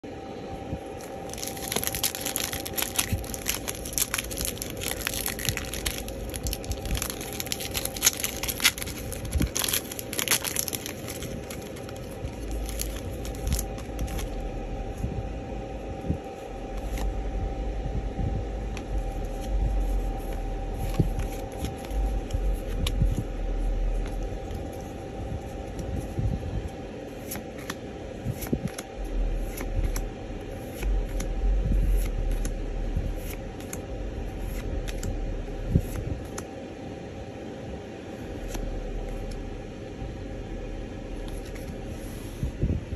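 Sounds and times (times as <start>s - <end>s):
faint steady hum: 0.0s - 42.9s
foil wrapper crinkling and tearing: 1.2s - 14.4s.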